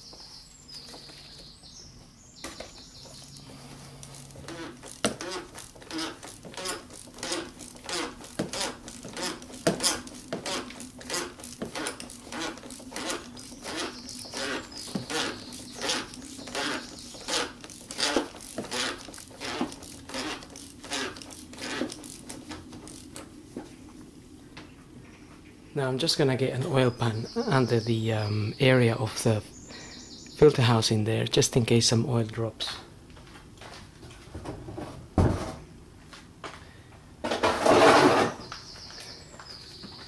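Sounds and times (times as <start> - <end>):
ratchet wrench clicking: 4.0 - 23.2.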